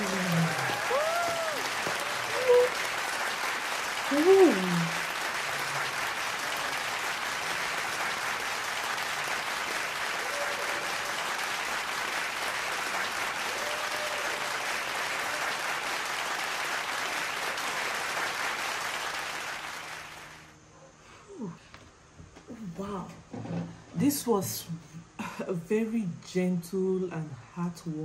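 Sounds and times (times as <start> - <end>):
audience applauding: 0.0 - 20.6.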